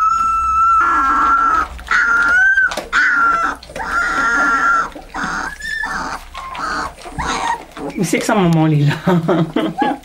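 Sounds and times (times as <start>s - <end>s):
puppy howling: 0.0s - 8.0s.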